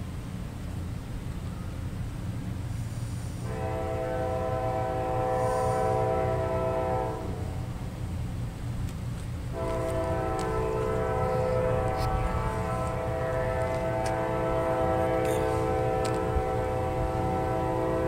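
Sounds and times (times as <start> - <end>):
low train rumble: 0.0 - 18.0
distant locomotive horn: 3.4 - 7.9, 9.5 - 18.0.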